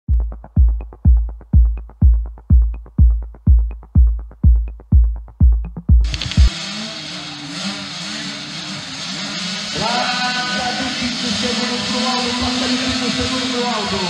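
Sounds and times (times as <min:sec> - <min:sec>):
electronic dance music: 0:00.1 - 0:14.0
track noise: 0:00.1 - 0:14.0
motocross bikes humming: 0:06.1 - 0:14.0.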